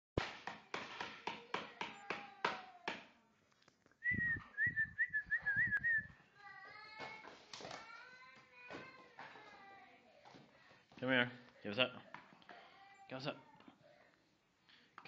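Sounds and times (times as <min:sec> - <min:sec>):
person whistling: 0:04.0 - 0:06.1.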